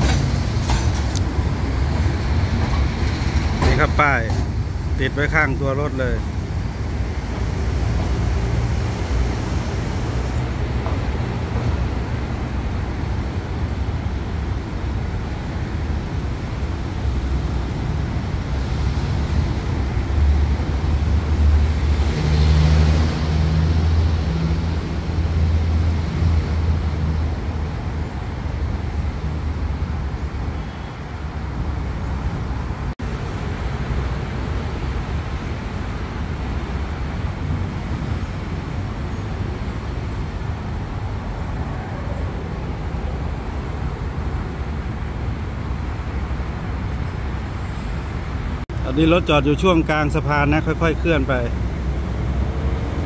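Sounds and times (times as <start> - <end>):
locomotive engine rumbling: 0.0 - 29.0.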